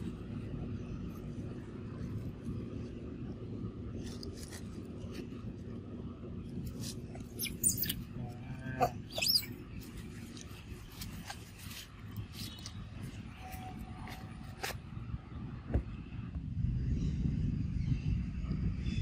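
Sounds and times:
low background noise: 0.0s - 18.9s
high-pitched animal calls: 7.3s - 9.6s.

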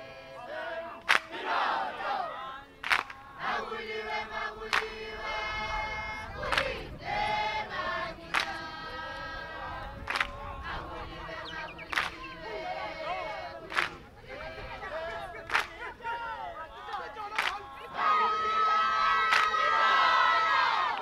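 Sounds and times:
group singing and chanting: 0.0s - 21.0s
voices whooping: 9.8s - 21.0s.

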